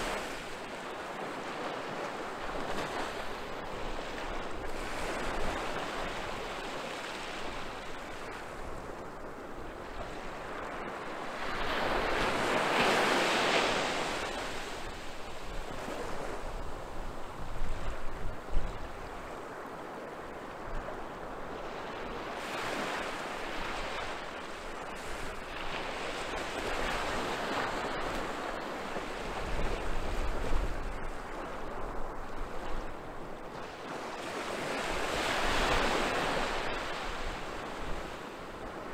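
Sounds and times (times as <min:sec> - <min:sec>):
waves breaking on beach: 0:00.0 - 0:38.9
wind buffeting microphone: 0:07.5 - 0:19.7, 0:20.5 - 0:38.9.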